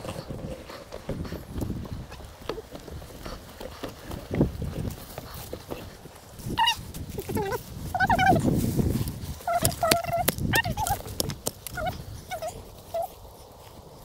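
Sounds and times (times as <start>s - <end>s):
low rustling noise: 0.0s - 14.0s
farmyard fowl calling: 6.4s - 8.6s, 9.4s - 13.2s
scattered clicks: 9.6s - 12.0s.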